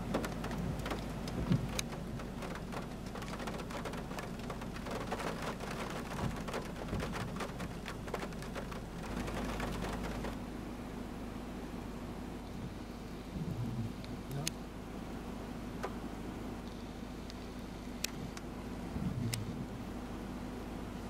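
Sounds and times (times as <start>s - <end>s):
raindrops ticking close by: 0.0s - 10.4s
steady rain falling: 0.0s - 10.4s.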